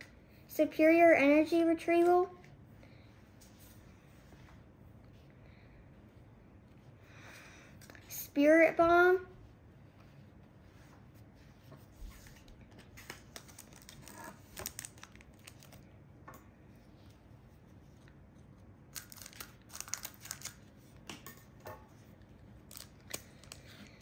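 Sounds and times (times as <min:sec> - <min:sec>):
foil pack crinkling: 0:12.9 - 0:15.8, 0:18.9 - 0:20.7, 0:22.6 - 0:24.0.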